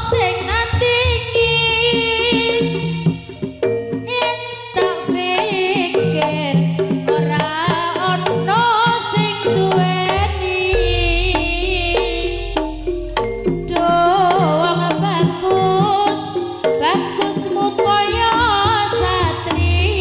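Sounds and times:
hand drum strokes: 2.2s - 20.0s
wavering melodic lead: 9.7s - 19.8s
deep bass note: 10.3s - 15.0s.

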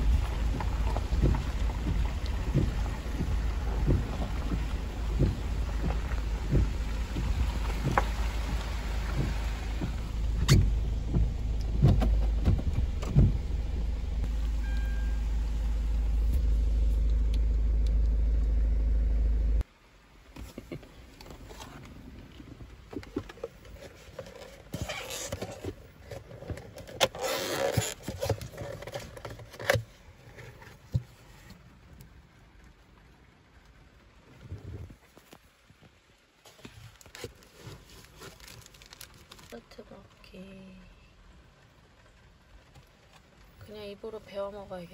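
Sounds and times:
car cabin rumble: 0.0s - 19.7s
paper box rustling: 36.5s - 39.5s.

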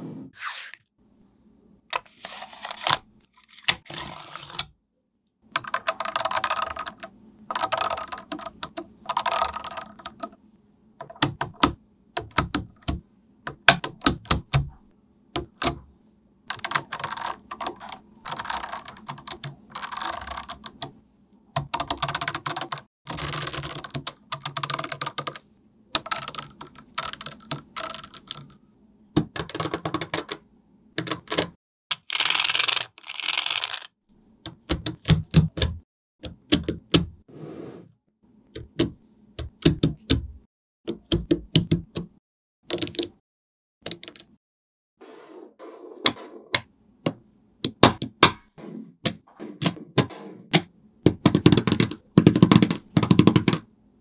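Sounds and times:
magnetic balls clicking together: 26.0s - 28.6s, 42.7s - 43.2s.

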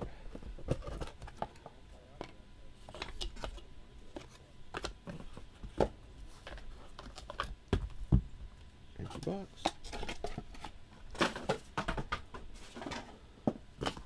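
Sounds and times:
cards tapping and scraping: 0.3s - 8.0s, 9.0s - 14.0s.

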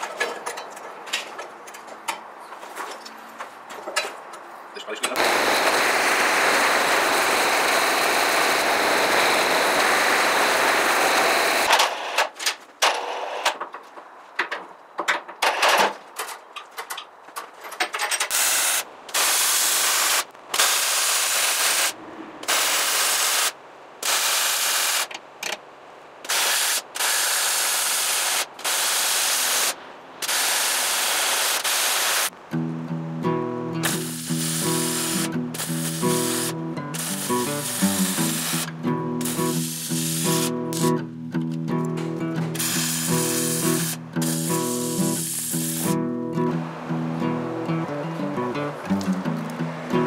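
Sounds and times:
torch flame burning: 5.2s - 13.5s, 18.3s - 25.2s, 26.2s - 32.4s, 33.8s - 41.0s, 42.5s - 46.0s
arc welding crackling: 5.2s - 13.6s, 18.3s - 25.2s, 26.2s - 32.4s, 33.8s - 41.1s, 42.4s - 46.0s.

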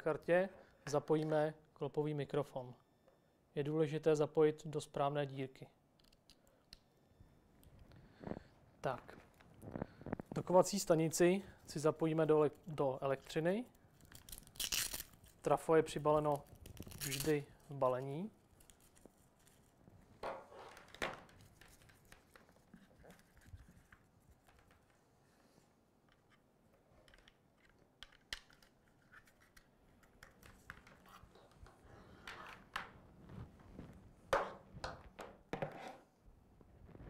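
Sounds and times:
cables rustling and clicking: 12.6s - 25.1s, 26.0s - 34.1s.

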